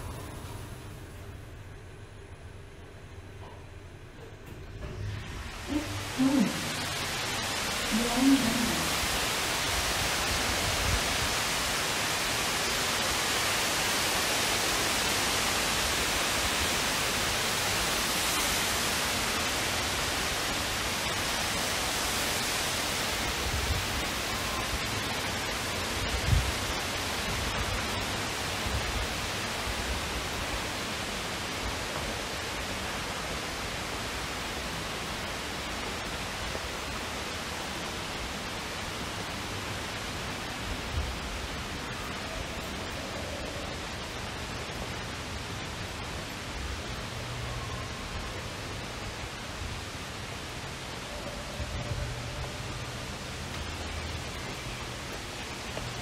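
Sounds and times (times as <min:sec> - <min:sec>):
falling water rushing: 0:04.8 - 0:56.0.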